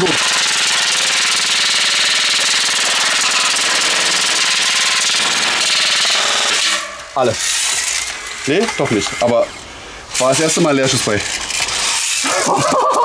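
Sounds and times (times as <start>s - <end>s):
airsoft rifle full-auto burst: 0.0s - 6.8s
magazine feed motor running: 0.0s - 12.4s.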